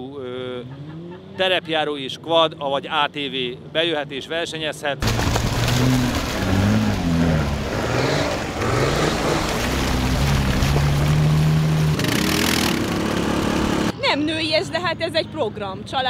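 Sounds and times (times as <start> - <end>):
muddy water churning: 5.0 - 13.9
engines revving: 5.0 - 14.0.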